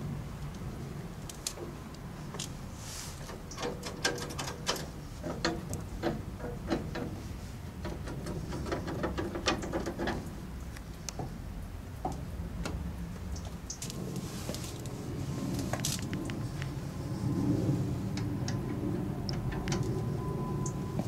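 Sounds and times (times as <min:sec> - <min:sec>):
metal levers clicking and clunking: 0:03.5 - 0:07.2
steady low rumble: 0:04.3 - 0:21.0.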